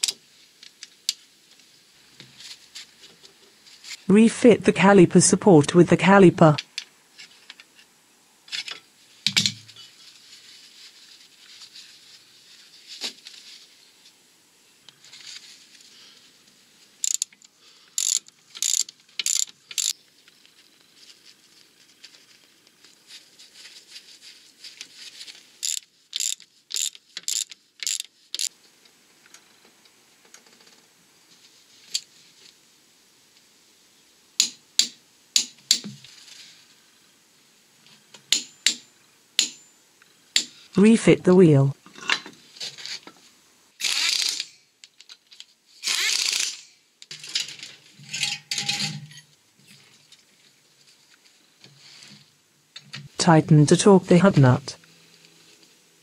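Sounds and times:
socket ratchet clicking: 17.0s - 17.4s, 18.0s - 19.9s, 25.6s - 28.5s.

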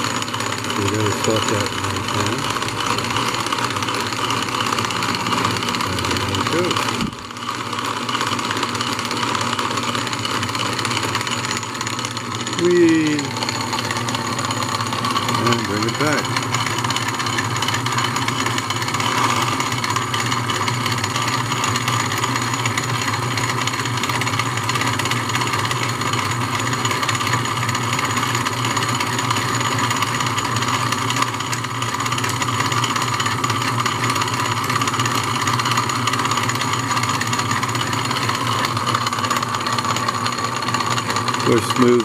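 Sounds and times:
lathe motor whirring: 0.0s - 42.0s
tool cutting wood: 0.0s - 42.0s.

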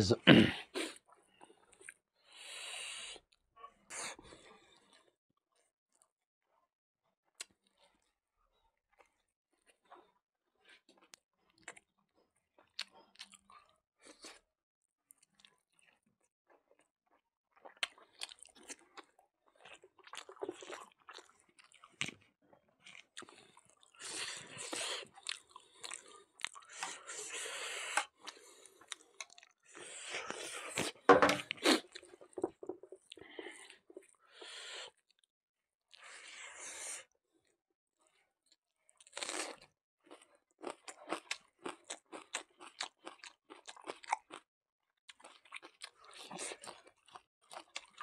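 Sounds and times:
person chewing and crunching: 10.7s - 14.4s, 15.1s - 35.3s, 38.9s - 48.0s.

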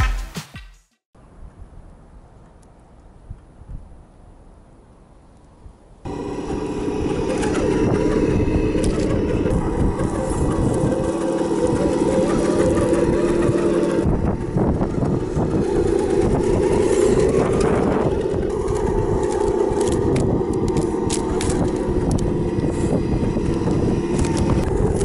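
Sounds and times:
wind buffeting microphone: 5.6s - 25.0s
simulated engine sound: 6.0s - 25.0s.

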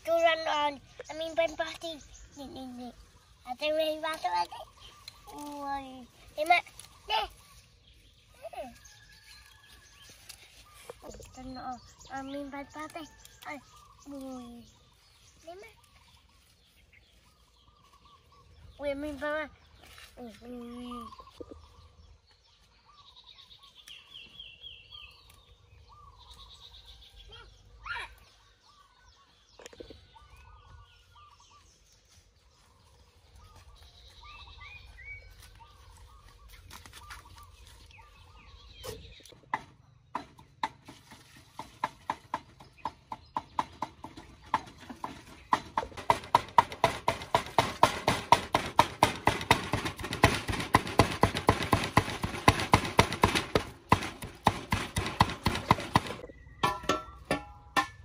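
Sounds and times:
faint bird calls: 4.2s - 9.1s
cleaver chopping on wooden board: 45.5s - 57.9s.

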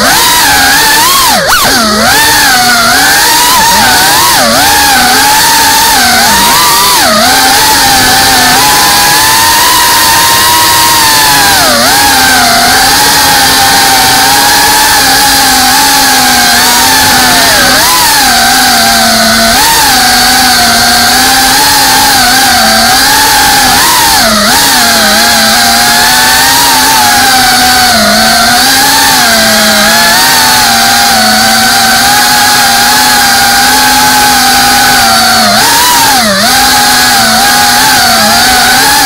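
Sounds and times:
drone motors buzzing whine: 0.0s - 39.0s.

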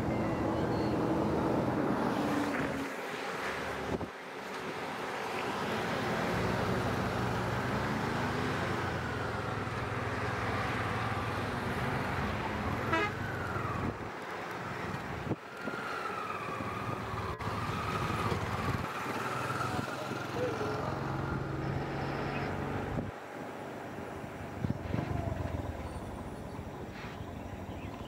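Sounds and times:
van engine rumbling: 5.7s - 28.0s.

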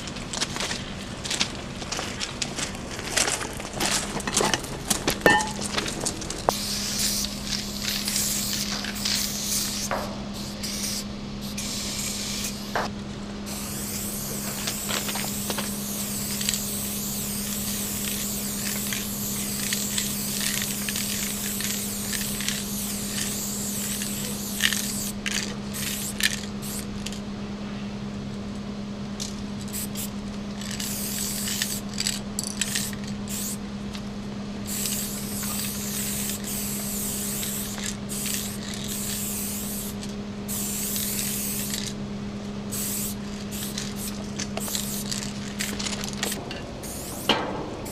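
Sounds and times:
steady low hum: 0.0s - 47.9s
spray-paint can hissing: 6.5s - 12.8s, 13.5s - 27.2s, 29.7s - 33.6s, 34.7s - 41.9s, 42.7s - 47.9s.

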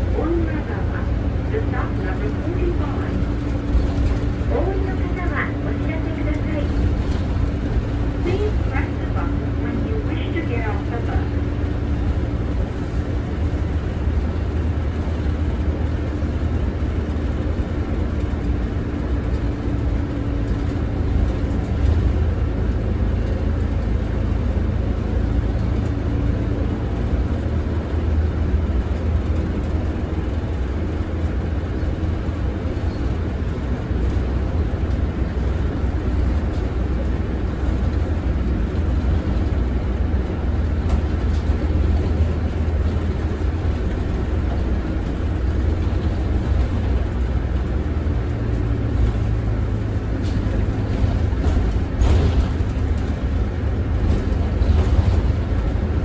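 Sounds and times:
bus engine drone: 0.0s - 56.0s
road and tyre noise: 0.0s - 56.0s.

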